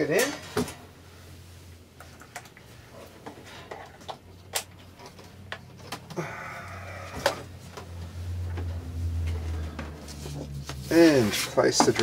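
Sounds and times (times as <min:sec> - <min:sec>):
low steady hum: 0:00.0 - 0:12.0
scraping rustle: 0:08.8 - 0:12.0.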